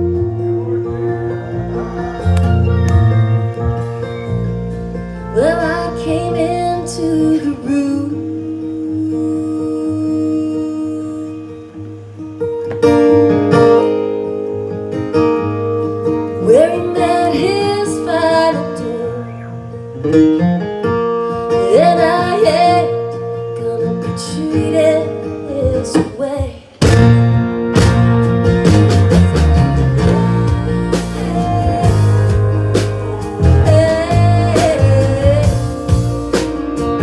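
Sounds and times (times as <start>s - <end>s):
electric bass: 0.0s - 8.5s, 26.8s - 37.0s
sliding melody line: 28.6s - 37.0s.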